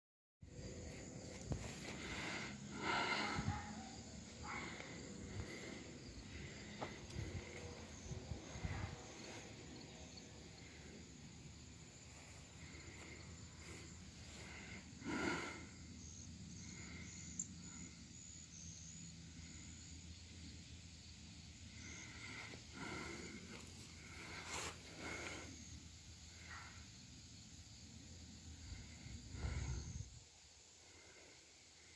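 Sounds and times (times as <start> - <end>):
faint insect chirps: 0.5 - 31.9
rustles: 22.0 - 25.5.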